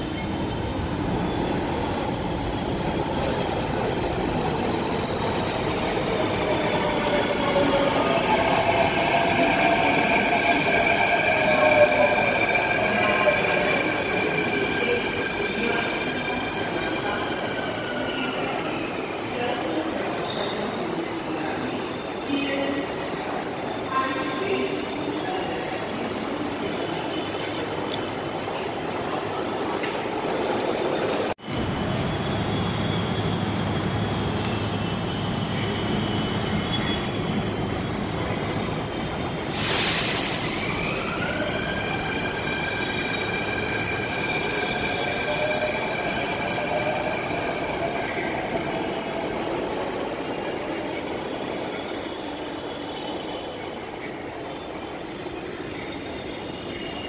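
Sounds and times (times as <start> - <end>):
hiss of air: 39.5 - 40.9.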